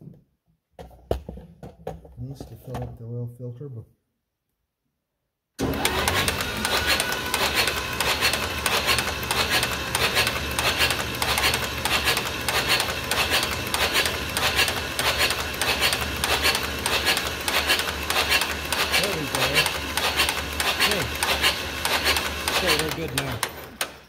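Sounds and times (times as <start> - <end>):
engine cranking on starter: 5.6 - 24.0.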